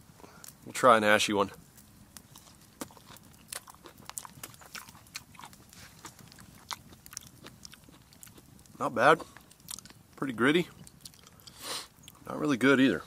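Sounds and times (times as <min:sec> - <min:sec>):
person chewing crunchy food: 0:02.2 - 0:10.1, 0:10.7 - 0:12.2.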